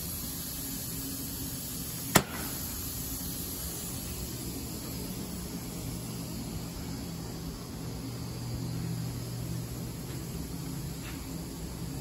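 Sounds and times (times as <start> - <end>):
machinery humming and hissing: 0.0 - 12.0.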